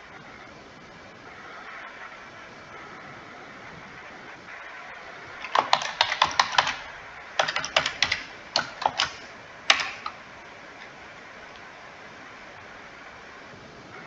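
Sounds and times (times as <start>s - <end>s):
computer keyboard keys clicking: 5.4s - 10.2s.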